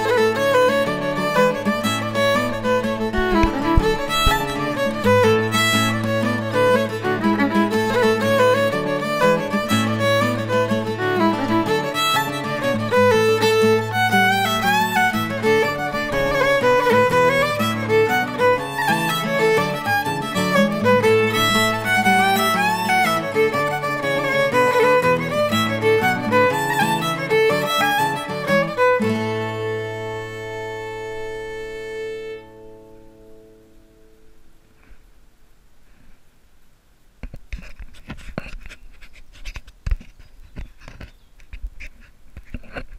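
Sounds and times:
lively violin music: 0:00.0 - 0:33.2
sharp knocks: 0:03.1 - 0:05.3.

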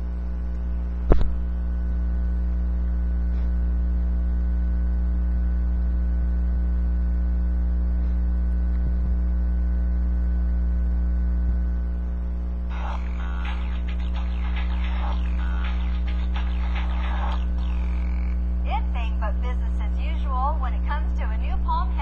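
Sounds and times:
electrical mains hum: 0:00.0 - 0:22.0
video audio from small speaker: 0:12.7 - 0:22.0.

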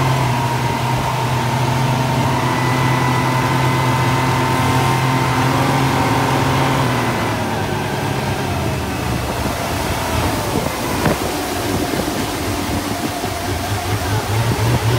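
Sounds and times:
outboard motors running: 0:00.0 - 0:14.9
rushing water from wake: 0:00.0 - 0:14.9.

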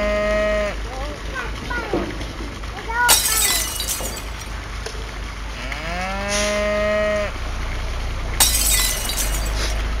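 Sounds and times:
cow mooing: 0:05.6 - 0:07.3.

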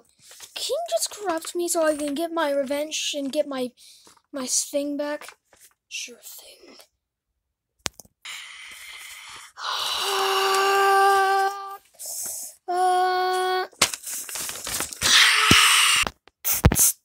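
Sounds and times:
breathy hissing: 0:08.3 - 0:11.3
person humming a note: 0:10.0 - 0:11.8.

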